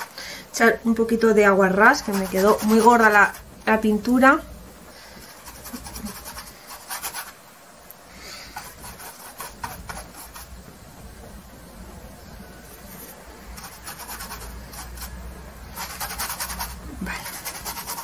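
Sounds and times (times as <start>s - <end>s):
paintbrush scrubbing canvas: 1.9s - 3.4s, 5.1s - 7.4s, 8.5s - 10.6s, 12.6s - 18.0s.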